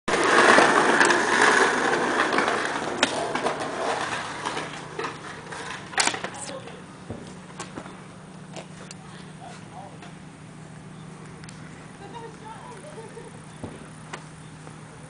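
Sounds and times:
skateboard clacks: 0:00.1 - 0:07.9
skateboard wheels rolling on concrete: 0:00.1 - 0:15.0.

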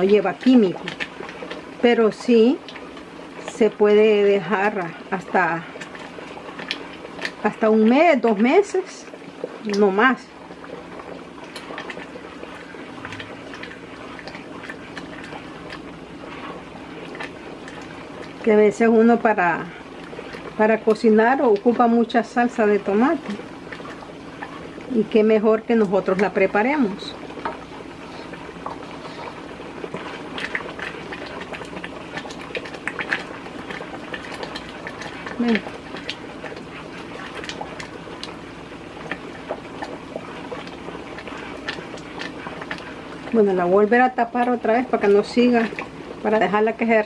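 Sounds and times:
tomato puree boiling and popping: 0:00.0 - 0:47.0
wooden spoon stirring: 0:10.4 - 0:46.0.

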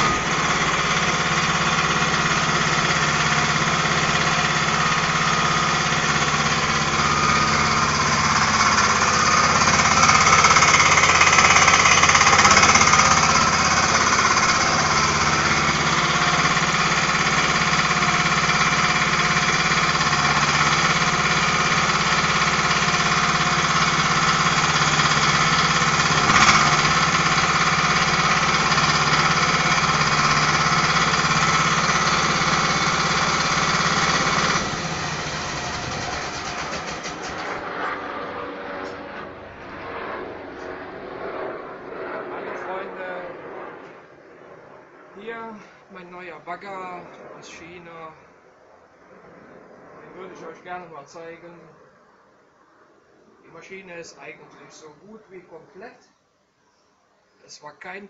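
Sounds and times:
small diesel engine running: 0:00.0 - 0:40.8.

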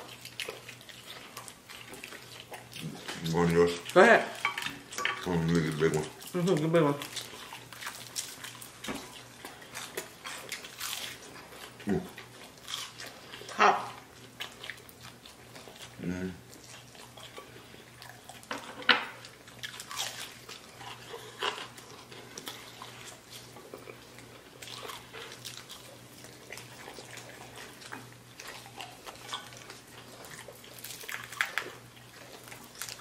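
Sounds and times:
crunching and wet chewing: 0:00.0 - 0:33.0.

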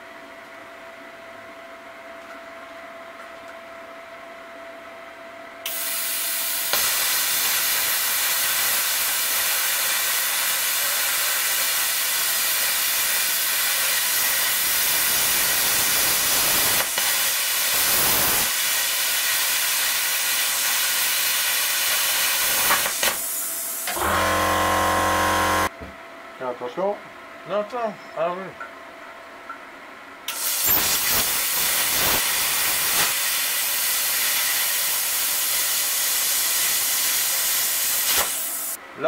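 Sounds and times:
plasma cutter torch hissing: 0:05.7 - 0:25.7, 0:30.3 - 0:38.8.

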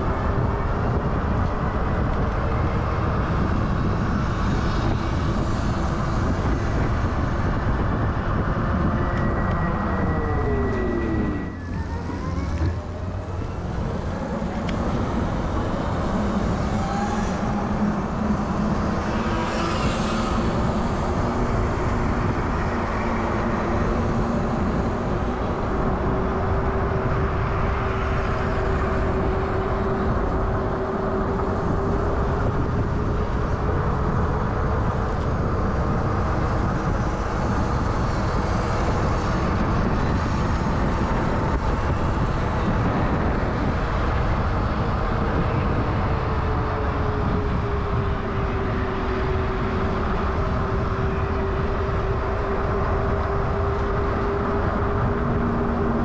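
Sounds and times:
wind rumble on microphone: 0:00.0 - 0:56.0
electric motors whining: 0:09.1 - 0:20.9.

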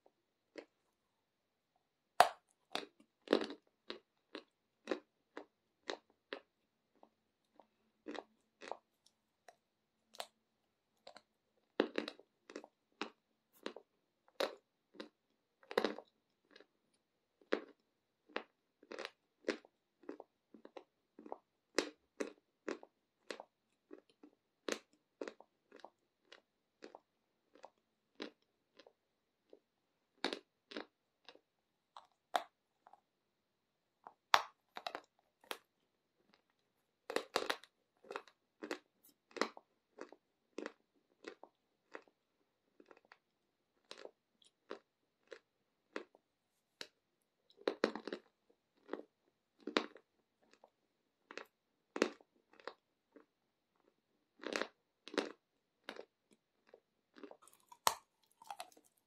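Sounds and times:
chalk crunching and chewing: 0:00.5 - 0:01.0, 0:02.2 - 0:33.1, 0:34.0 - 0:59.0.

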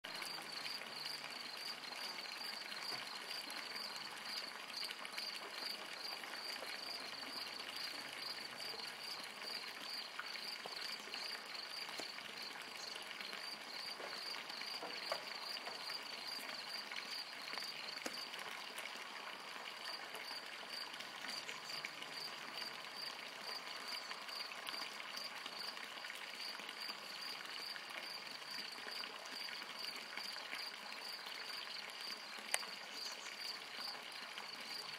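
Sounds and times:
small water clicks: 0:00.0 - 0:34.9
faint outdoor hiss: 0:00.1 - 0:34.9
insect chirping: 0:13.3 - 0:18.3.

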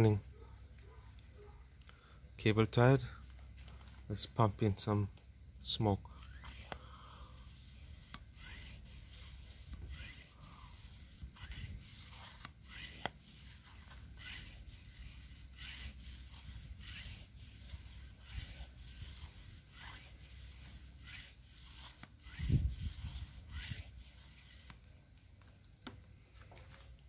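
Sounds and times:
hand pump strokes of air: 0:05.6 - 0:25.6.

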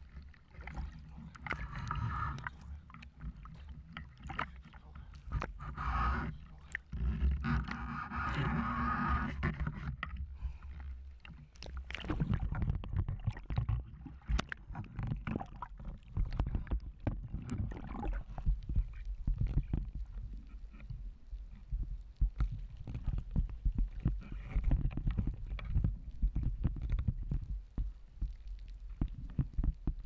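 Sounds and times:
water splashing and bubbling: 0:00.0 - 0:30.0.

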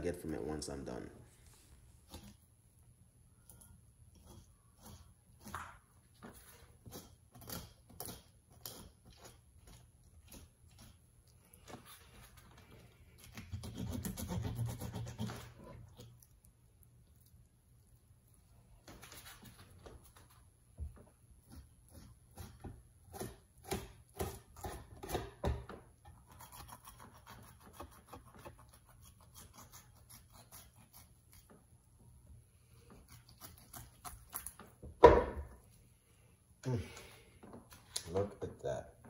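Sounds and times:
knife scraping fish on board: 0:13.2 - 0:15.8, 0:26.1 - 0:31.6
knock on cutting board: 0:35.0 - 0:35.5.

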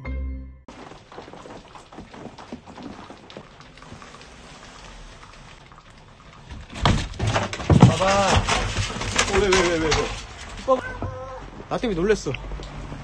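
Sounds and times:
footsteps crunching in snow: 0:00.7 - 0:05.1.

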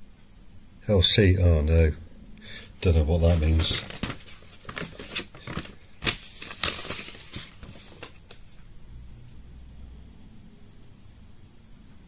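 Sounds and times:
light clicks and handling rustles: 0:03.6 - 0:08.4.

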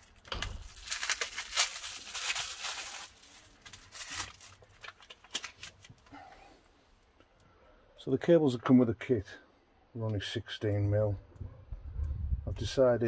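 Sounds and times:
plastic packaging rustling: 0:00.0 - 0:06.1.

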